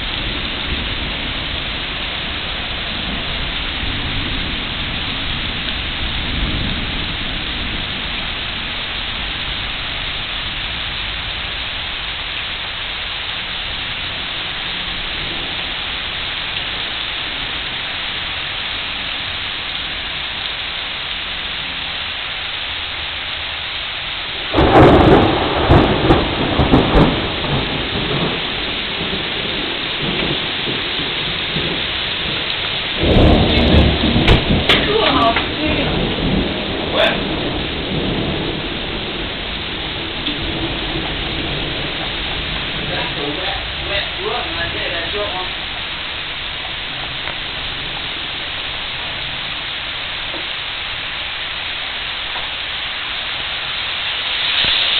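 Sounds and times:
loud thunderclap: 0.0 - 9.4, 24.4 - 49.5
rain on pavement and leaves: 0.0 - 54.9.

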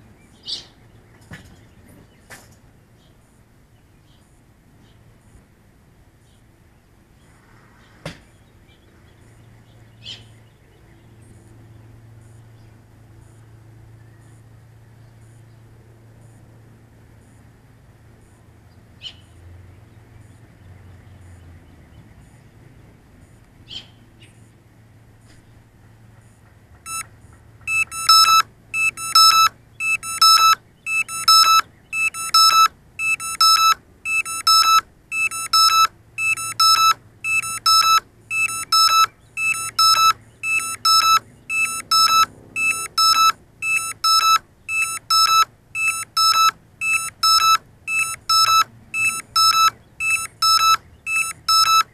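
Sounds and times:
electronic beeper short beeps: 26.9 - 27.1, 27.7 - 51.9
brief high chirps: 27.7 - 51.8.

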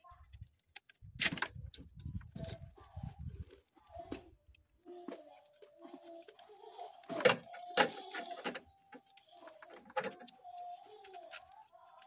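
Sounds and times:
plastic connectors clicking: 7.0 - 12.0.

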